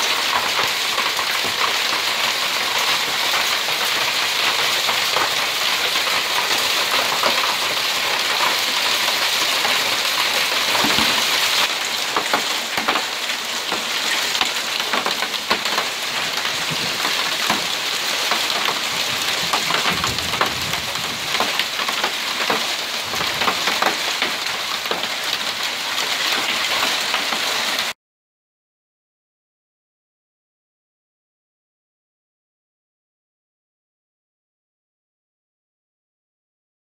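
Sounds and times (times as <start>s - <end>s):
hail and rain pelting roof tiles: 0.0s - 28.0s.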